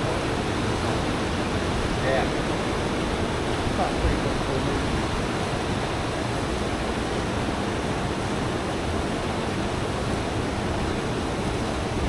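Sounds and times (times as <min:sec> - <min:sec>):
water rushing past boat: 0:00.0 - 0:12.0.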